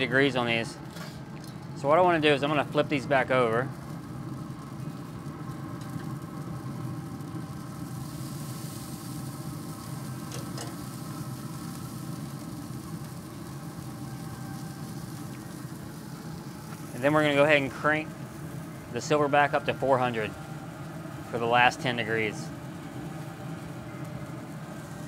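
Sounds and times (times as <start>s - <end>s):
grill fan humming: 0.0s - 25.0s.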